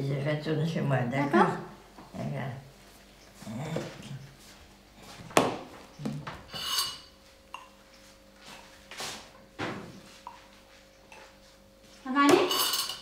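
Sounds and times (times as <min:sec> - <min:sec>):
cutlery clinking: 0:12.4 - 0:13.0.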